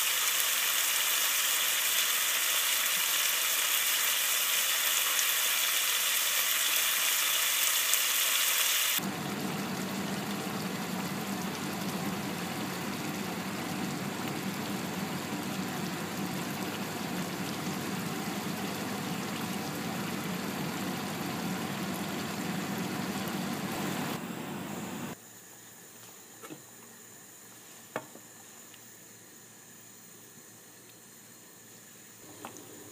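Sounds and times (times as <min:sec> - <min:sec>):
gravy sizzling in a pan: 0:00.0 - 0:24.1.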